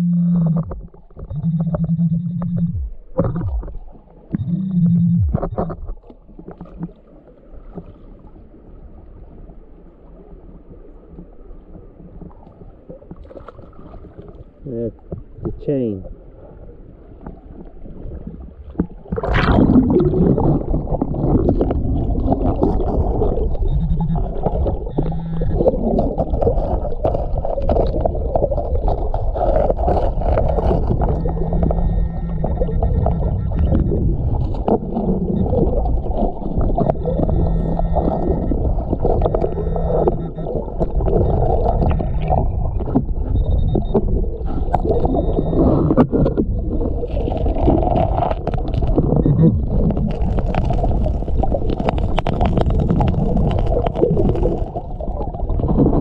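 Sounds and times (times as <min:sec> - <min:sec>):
pinpointer buzzing tones: 0:00.0 - 0:06.0, 0:22.4 - 0:26.6, 0:30.2 - 0:46.4
muffled underwater gurgle: 0:00.0 - 0:56.0
camera plunging into water: 0:18.6 - 0:23.6.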